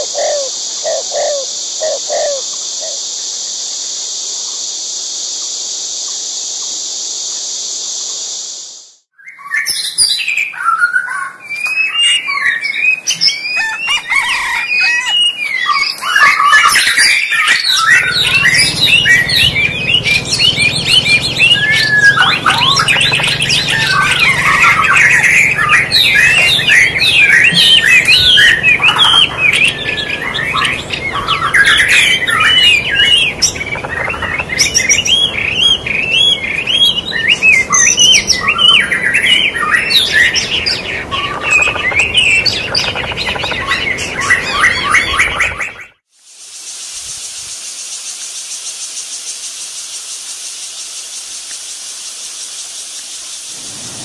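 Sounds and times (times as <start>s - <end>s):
sparrows chirping: 14.4s - 45.7s, 53.2s - 54.0s.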